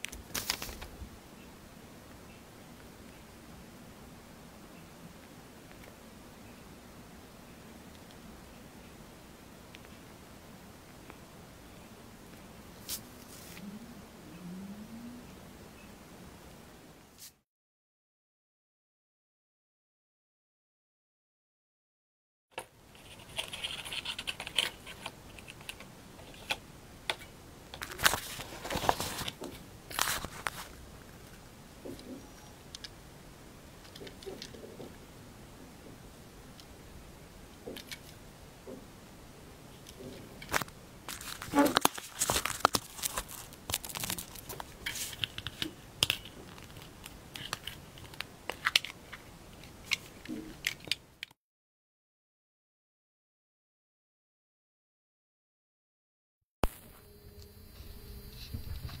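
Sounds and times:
rustling crackles: 0.0s - 1.1s, 12.8s - 13.7s, 22.9s - 32.2s, 39.7s - 51.0s
plastic parts clicking and tapping: 22.6s - 28.2s, 33.8s - 35.0s, 39.8s - 51.3s.

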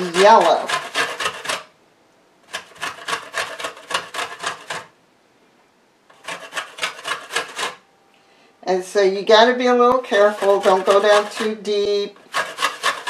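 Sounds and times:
lemon rasping on metal grater: 0.0s - 1.7s, 2.5s - 4.9s, 6.1s - 7.8s, 9.9s - 13.0s.

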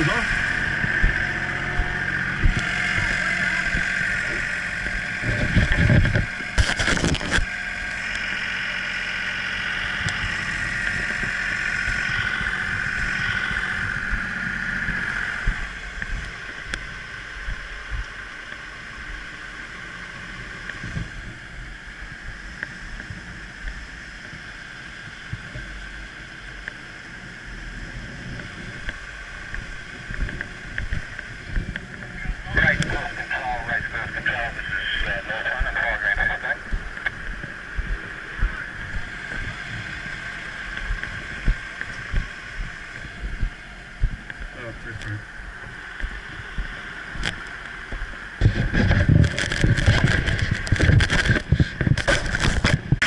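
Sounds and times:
fire truck engine running: 0.0s - 53.0s
road noise: 0.0s - 53.0s
steady high whine: 0.0s - 53.0s.

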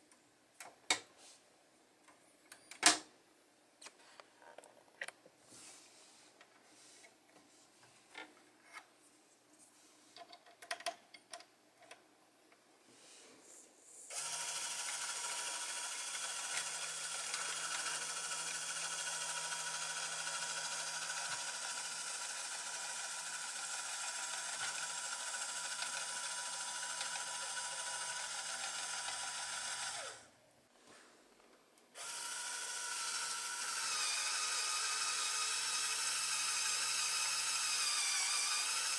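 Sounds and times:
small plastic clicks and knocks: 10.2s - 12.0s
electric motor geared whine: 14.1s - 30.2s, 32.0s - 38.9s.

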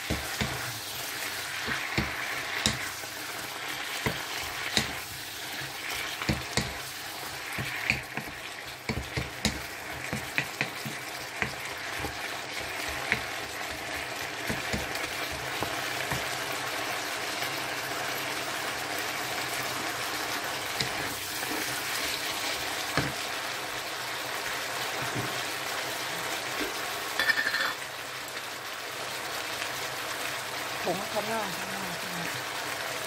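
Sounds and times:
wooden spatula knocking pan: 0.0s - 0.7s, 1.6s - 3.0s, 3.9s - 5.1s, 6.1s - 16.4s
vegetables sizzling in a wok: 0.0s - 33.0s.

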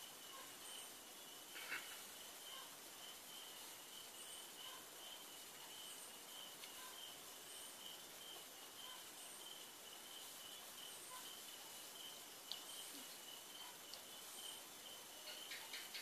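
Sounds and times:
faint background hiss: 0.0s - 16.0s
faint clicks: 6.6s - 6.8s, 12.4s - 13.2s, 13.8s - 14.1s.

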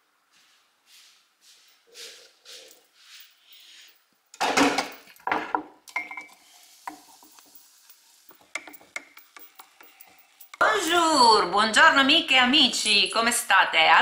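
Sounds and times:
spoon clinking against a mug: 5.9s - 7.0s.

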